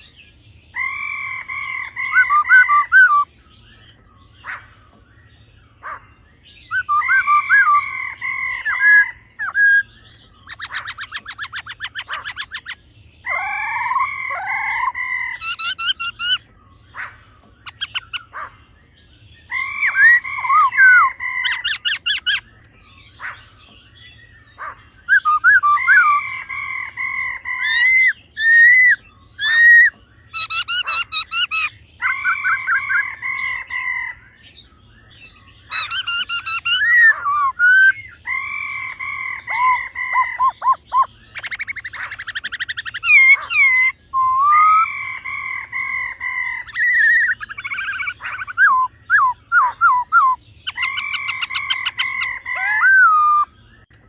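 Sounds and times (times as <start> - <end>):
bird whistled song: 0.0 - 54.0
bird fast rattling calls: 10.4 - 12.8.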